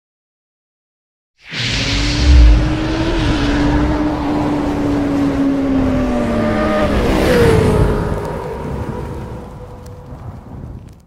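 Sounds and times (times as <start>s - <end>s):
rush of noise: 1.4s - 7.5s.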